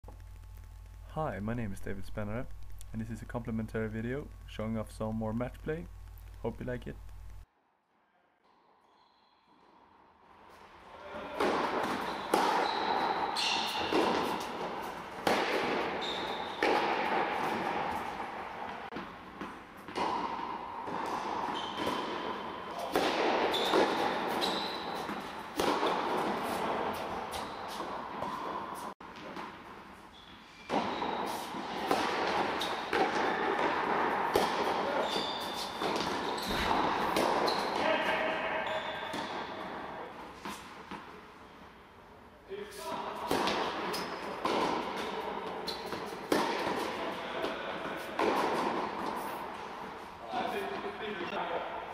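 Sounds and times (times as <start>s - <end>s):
tennis balls hit by rackets: 11.2s - 29.9s, 30.6s - 41.3s, 42.8s - 50.9s
tennis balls bouncing on court: 11.3s - 29.9s, 30.7s - 41.2s, 43.2s - 50.0s.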